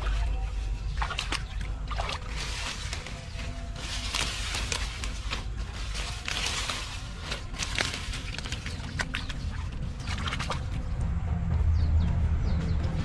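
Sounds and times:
weeds rustling and crackling: 0.0s - 10.2s.

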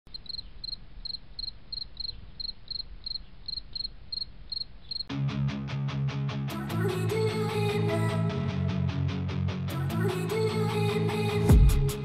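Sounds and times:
cricket chirping: 0.1s - 5.1s.

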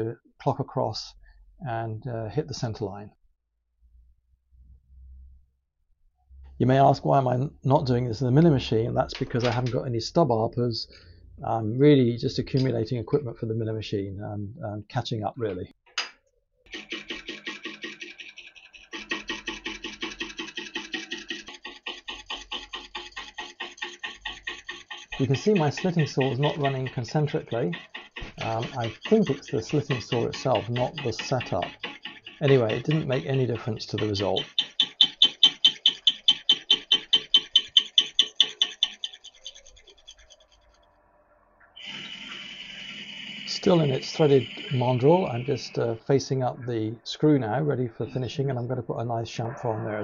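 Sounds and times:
slitting saw rasping: 16.7s - 40.8s, 41.8s - 46.0s
high-pitched lathe cutting: 18.9s - 39.3s, 41.8s - 46.1s.

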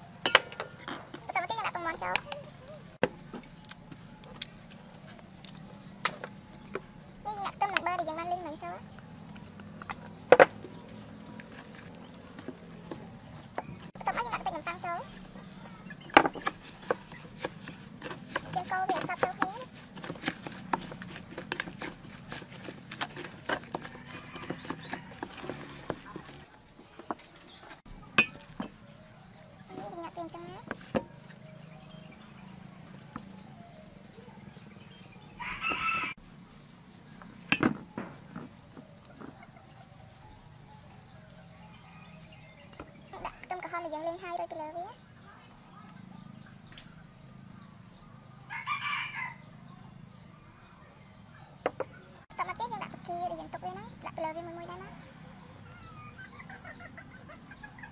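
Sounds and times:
rooster crowing: 23.8s - 25.5s, 35.3s - 36.2s, 48.4s - 49.7s.

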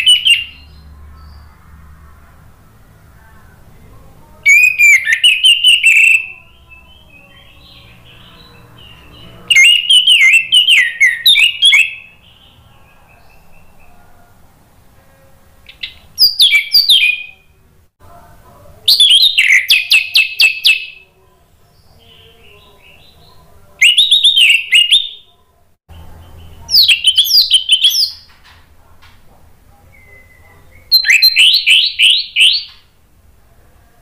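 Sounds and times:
thrush singing: 0.0s - 25.3s.

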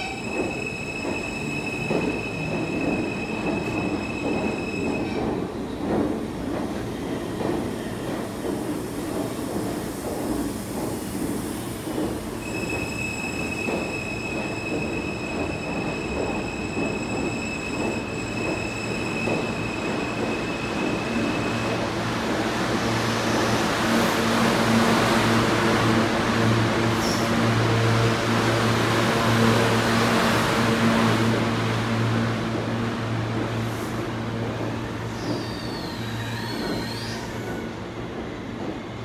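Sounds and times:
subway train rumbling: 0.0s - 39.0s.

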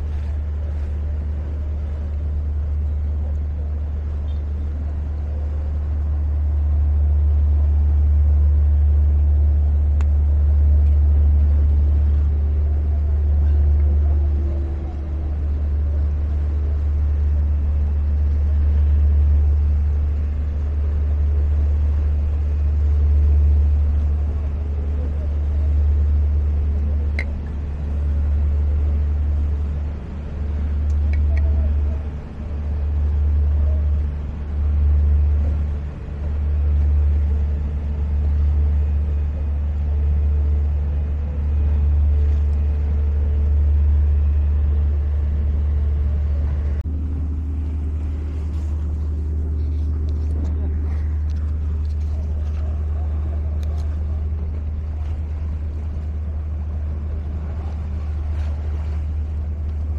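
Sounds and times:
deep city rumble: 0.0s - 59.9s.

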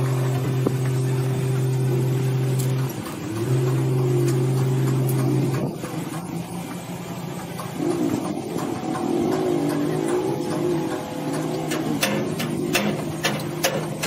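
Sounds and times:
electric welder humming: 0.0s - 14.0s.

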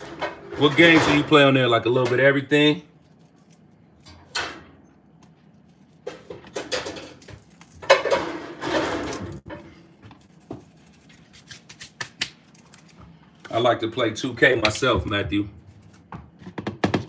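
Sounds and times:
dishes and utensils clattering: 0.0s - 2.2s, 6.0s - 9.8s.

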